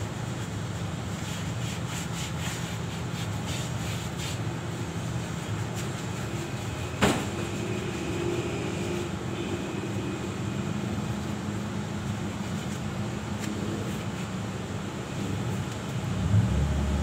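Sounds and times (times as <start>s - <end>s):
low workshop rumble: 0.0s - 17.0s.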